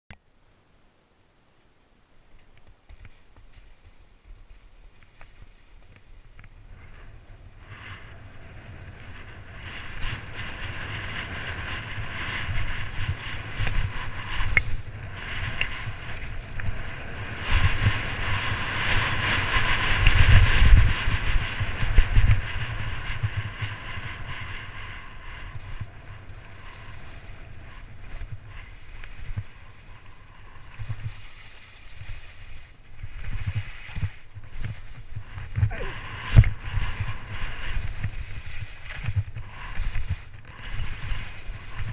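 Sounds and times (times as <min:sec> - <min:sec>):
wind rumbling on microphone: 0:02.4 - 0:41.9
skis hissing over snow: 0:03.0 - 0:41.9.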